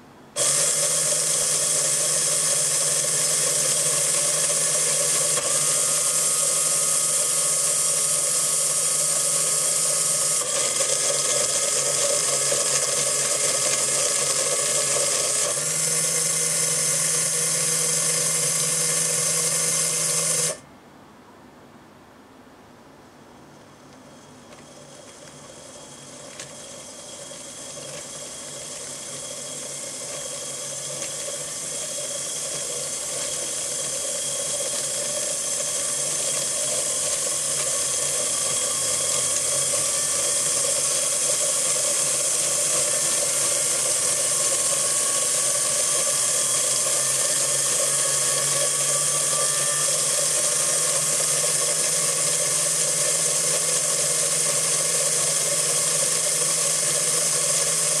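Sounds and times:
gear motors whirring: 0.4s - 20.6s, 24.4s - 58.0s.

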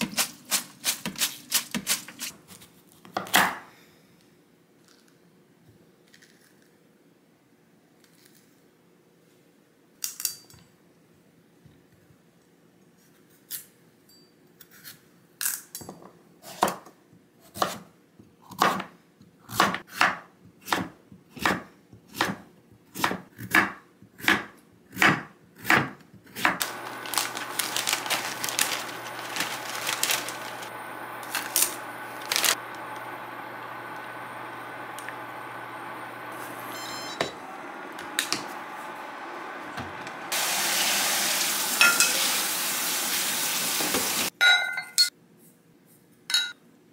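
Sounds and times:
water boiling in a pot: 37.4s - 44.3s.

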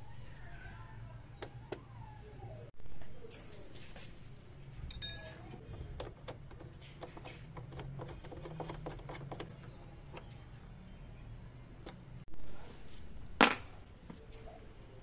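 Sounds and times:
metal bolt clinking: 4.9s - 5.5s.

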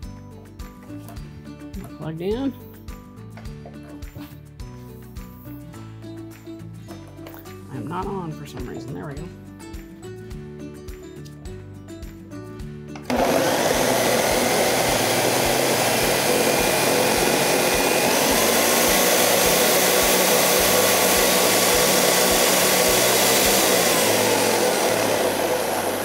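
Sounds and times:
blender running at high speed: 13.1s - 26.0s.

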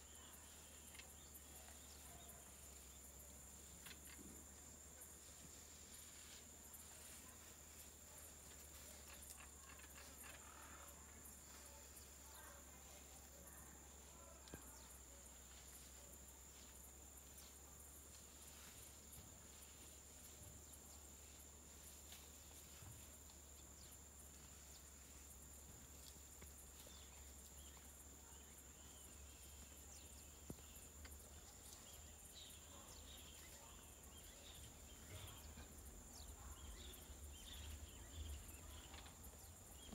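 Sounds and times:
faint ticks: 0.8s - 1.9s, 3.2s - 4.2s, 8.5s - 11.0s.

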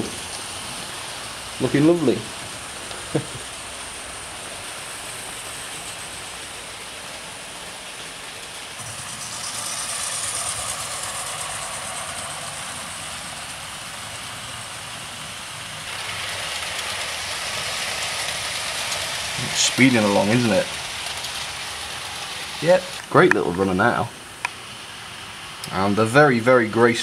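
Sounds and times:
model trains whirring on track: 0.0s - 27.0s.

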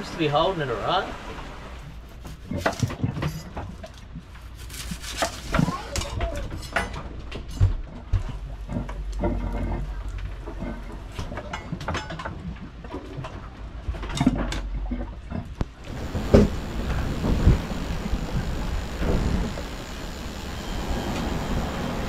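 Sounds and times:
wind rumbling on microphone: 15.2s - 22.0s.

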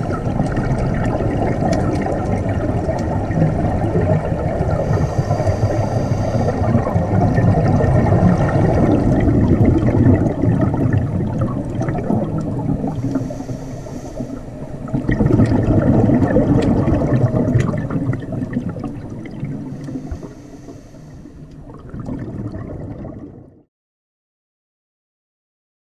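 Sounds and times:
exhaled bubbles rumbling underwater: 0.0s - 23.7s
scuba regulator inhale hiss: 4.7s - 7.1s, 12.8s - 14.8s, 19.6s - 21.5s.

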